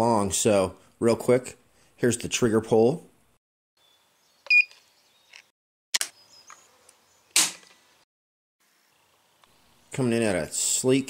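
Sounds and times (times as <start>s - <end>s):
gauge short beep: 4.5s - 4.7s.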